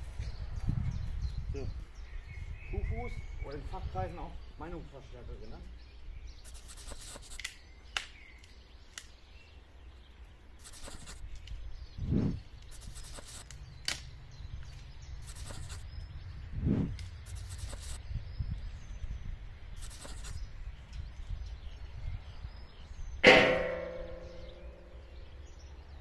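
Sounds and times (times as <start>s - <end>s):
scraping on wood: 10.6s - 11.2s
sharp knocks: 23.2s - 24.7s.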